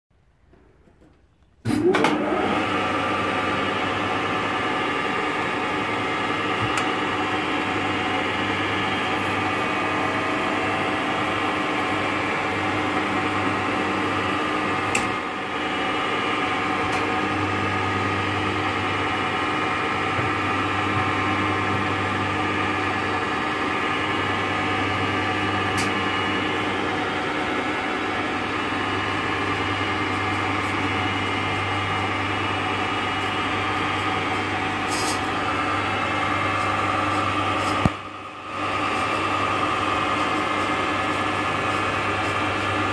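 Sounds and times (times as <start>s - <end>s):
milling machine running: 1.8s - 42.9s.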